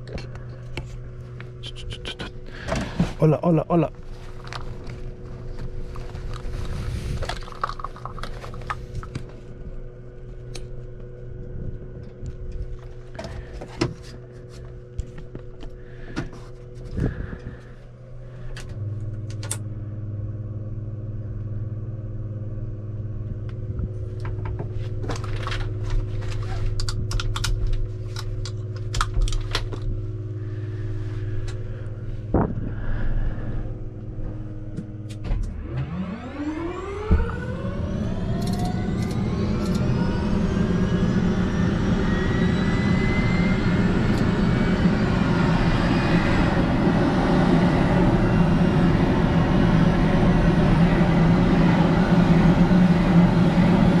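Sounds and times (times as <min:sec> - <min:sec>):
deeper louder hum: 0:00.0 - 0:54.0
steady hum: 0:00.0 - 0:54.0
buckles and switches clicking: 0:26.8 - 0:29.8.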